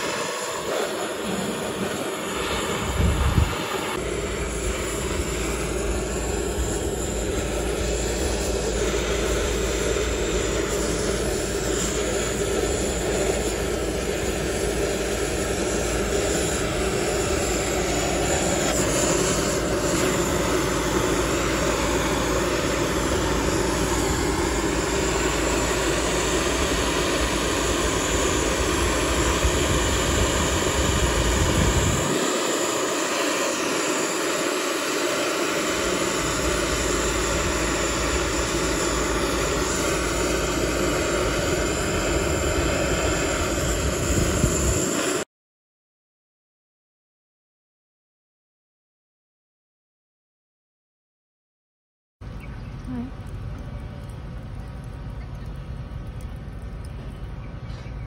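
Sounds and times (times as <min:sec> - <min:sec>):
nozzle tool rushing jet: 0:00.0 - 0:45.2
low rumble: 0:01.2 - 0:11.5.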